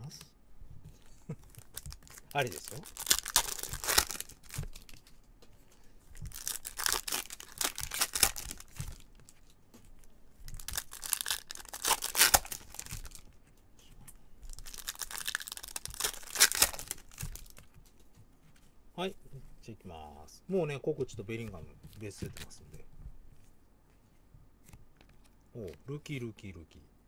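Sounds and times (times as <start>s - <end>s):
foil wrappers crinkling and tearing: 1.3s - 5.2s, 6.1s - 9.6s, 10.5s - 13.3s, 14.5s - 18.0s.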